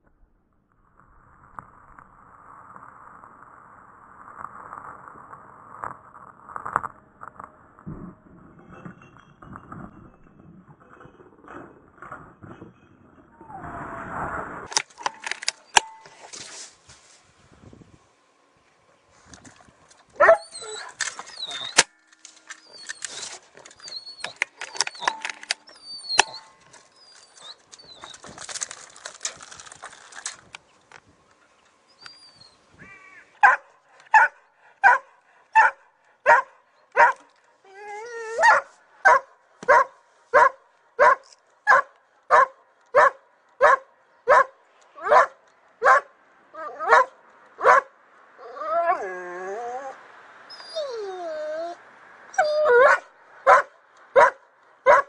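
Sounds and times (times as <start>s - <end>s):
rustles and clicks: 4.2s - 18.0s, 19.1s - 32.7s
high chirps: 22.6s - 28.4s.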